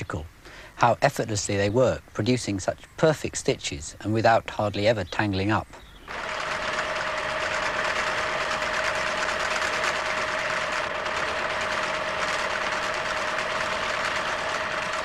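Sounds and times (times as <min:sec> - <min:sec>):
sewing machine running: 0:06.1 - 0:15.0.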